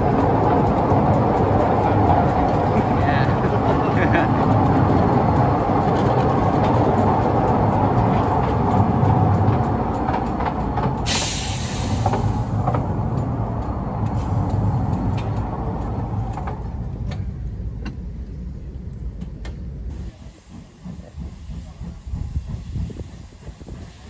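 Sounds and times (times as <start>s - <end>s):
sharp track clicks: 0.0s - 22.6s
miniature train rumbling on track: 0.0s - 24.0s
short hiss: 11.1s - 12.4s.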